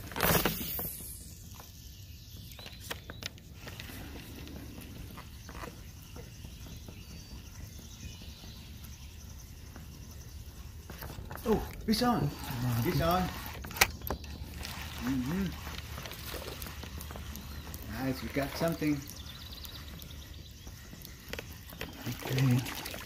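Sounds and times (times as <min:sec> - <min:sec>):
outdoor background noise: 0:00.0 - 0:23.0
small ticks: 0:02.4 - 0:23.0
fishing reel whirring: 0:12.0 - 0:16.9.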